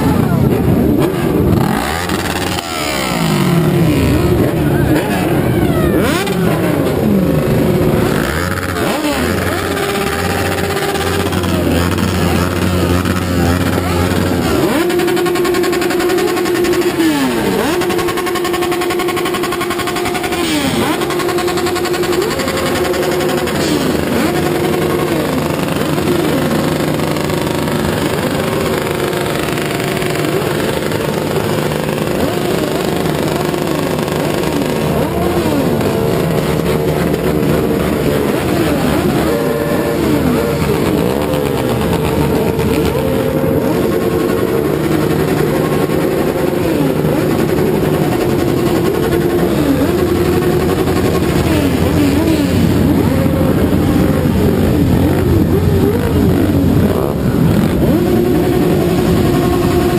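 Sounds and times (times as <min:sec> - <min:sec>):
motorcycle engines revving: 0:00.0 - 0:59.9.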